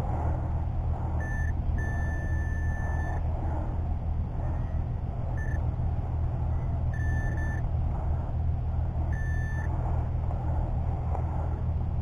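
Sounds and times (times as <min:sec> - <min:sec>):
steady low rumble: 0:00.0 - 0:12.0
metal detector beeping: 0:01.2 - 0:03.2, 0:06.9 - 0:07.6, 0:09.1 - 0:09.7.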